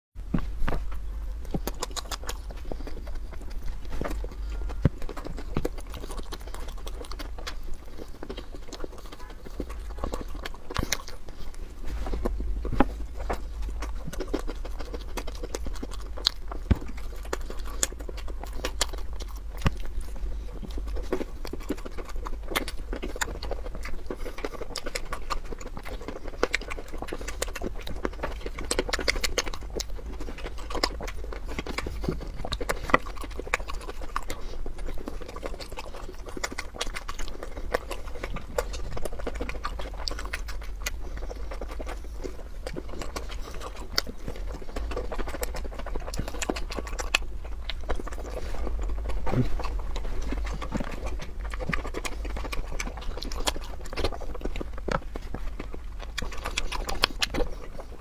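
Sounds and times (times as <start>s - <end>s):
low steady hum: 0.2s - 58.0s
person chewing food: 0.2s - 58.0s.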